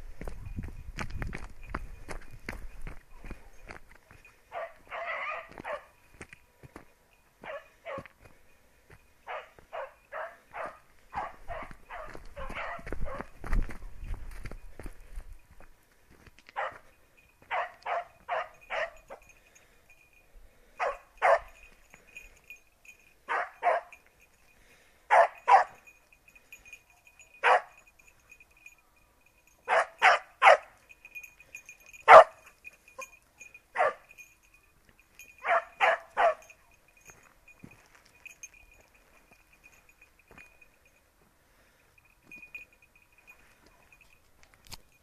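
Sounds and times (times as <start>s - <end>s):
hound barking: 4.5s - 6.0s, 7.4s - 8.2s, 9.2s - 13.4s, 16.6s - 16.9s, 17.5s - 19.2s, 20.8s - 21.6s, 23.2s - 24.0s, 25.1s - 25.8s, 27.0s - 27.8s, 29.6s - 30.8s, 31.8s - 33.1s, 33.7s - 34.1s, 35.4s - 36.6s.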